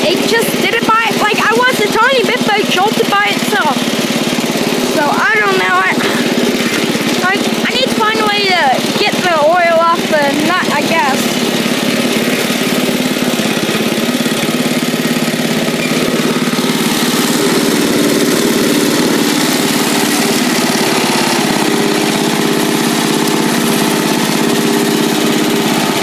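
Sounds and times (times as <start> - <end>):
lawn tractor engine running: 0.0 - 26.0.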